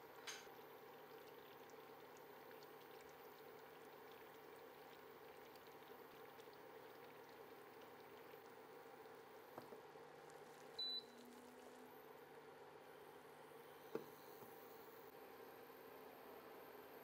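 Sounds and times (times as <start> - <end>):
syrup bubbling and popping: 0.0 - 12.0.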